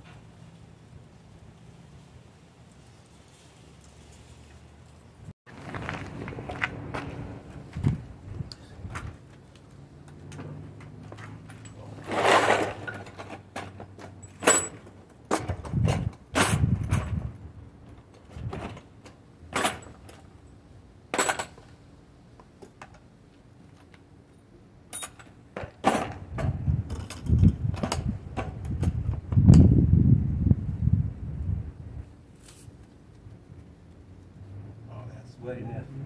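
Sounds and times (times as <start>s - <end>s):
hand tools clinking: 10.8s - 15.5s, 24.9s - 26.2s.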